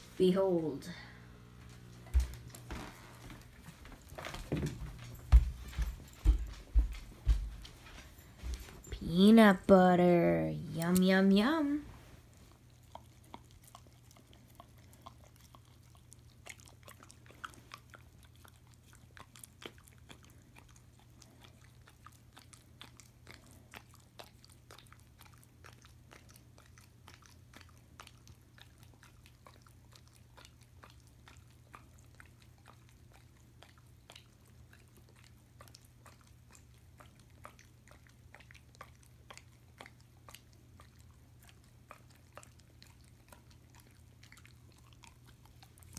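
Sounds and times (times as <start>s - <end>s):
steady low hum: 0.0s - 24.2s
dog licking and smacking: 2.0s - 9.4s, 10.8s - 45.9s.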